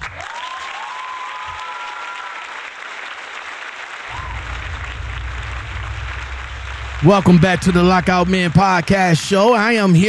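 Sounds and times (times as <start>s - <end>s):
crowd applauding and cheering: 0.0s - 9.5s
drawn-out cheering voices: 0.2s - 2.6s.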